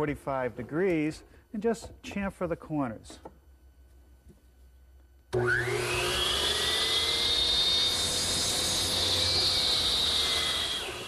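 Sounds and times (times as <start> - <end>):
miter saw motor whine: 5.4 - 11.0.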